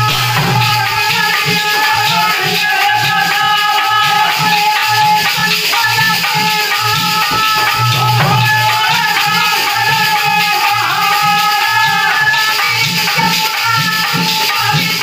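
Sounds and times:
dholak drum rhythm: 0.0s - 15.0s
metal plate ringing: 7.0s - 9.6s.

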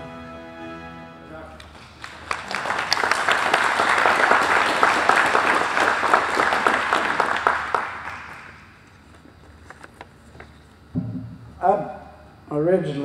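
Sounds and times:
audience applauding: 1.6s - 8.8s.

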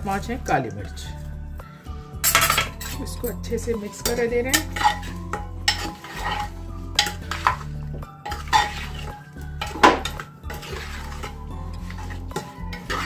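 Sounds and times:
spoon clinking on metal pot: 2.2s - 3.1s, 4.0s - 13.0s
spoon scraping pot: 4.1s - 13.0s.

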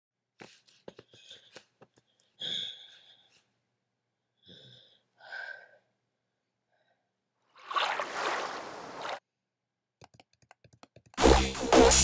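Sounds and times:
breathy vocal sounds: 2.2s - 3.5s, 4.4s - 6.0s.

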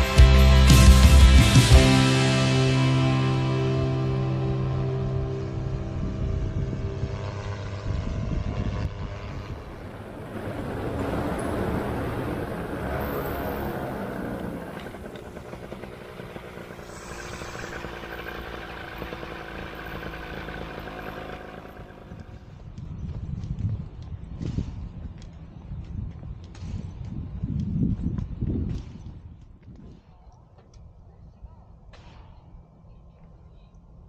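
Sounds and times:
paramotor engine and propeller droning: 1.6s - 22.9s.

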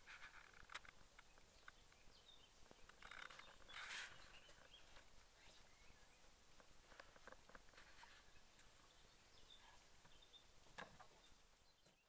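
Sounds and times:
rustling: 0.0s - 11.4s
small birds chirping: 0.0s - 12.0s.

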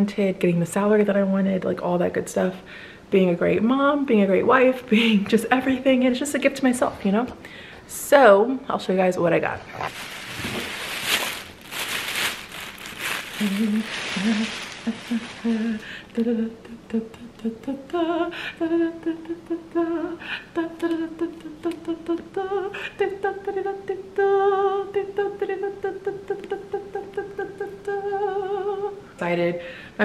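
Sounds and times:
plastic bag rustling: 9.7s - 16.1s
woman humming: 13.4s - 29.0s.

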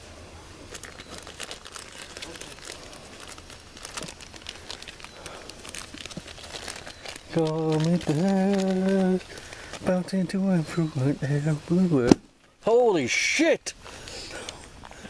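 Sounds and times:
plastic bag crinkling: 0.7s - 12.2s.

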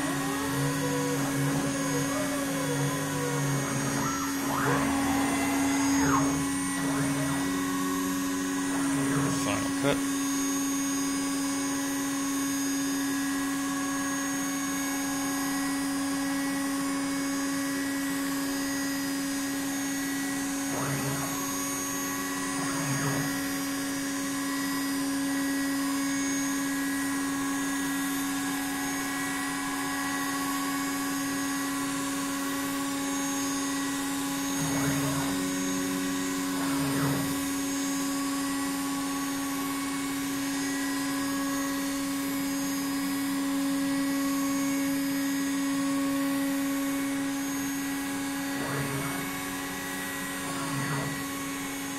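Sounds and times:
drive motor tones gliding: 0.0s - 51.9s
router spindle motor whine: 0.0s - 51.9s.

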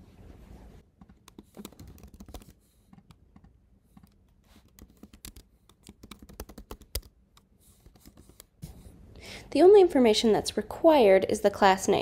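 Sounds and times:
faint typing on a keyboard: 1.0s - 8.6s.

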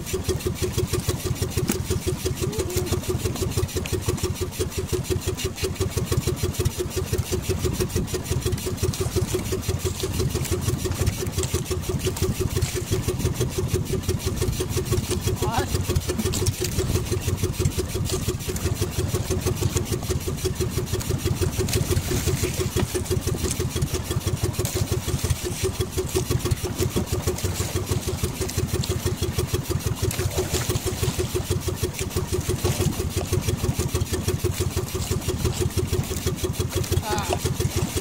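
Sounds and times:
boat engine puttering: 0.0s - 38.0s.

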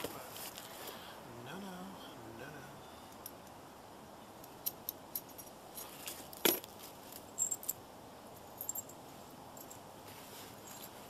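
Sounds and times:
metal hardware clinking: 4.4s - 7.8s, 8.4s - 9.0s
metallic jingle: 7.3s - 7.8s, 8.4s - 9.0s, 10.6s - 11.0s.

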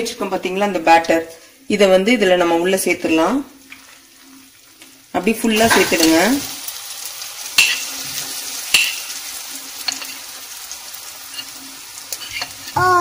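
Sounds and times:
hot oil sizzling in a pan: 2.8s - 13.0s.

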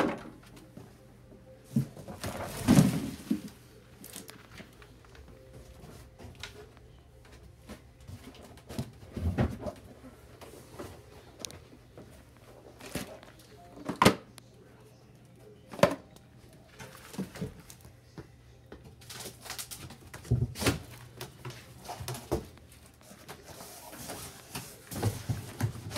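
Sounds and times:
low steady hum: 0.0s - 19.2s.

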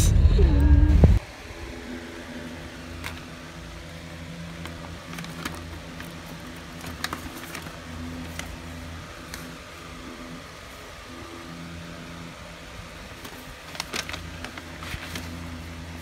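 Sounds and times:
steady low hum: 0.0s - 16.0s
paper bag crinkling: 4.5s - 9.6s, 13.1s - 16.0s.

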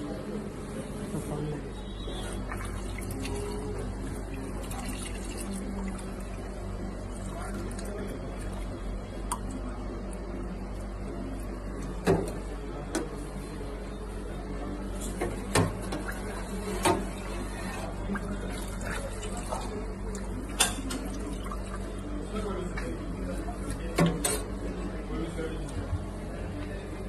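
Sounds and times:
liquid poured into plastic cups: 2.3s - 10.8s.

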